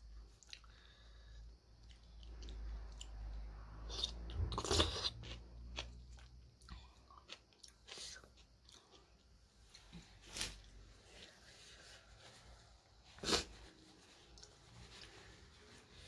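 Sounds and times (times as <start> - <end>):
person chewing: 0.4 - 1.0, 3.9 - 9.8.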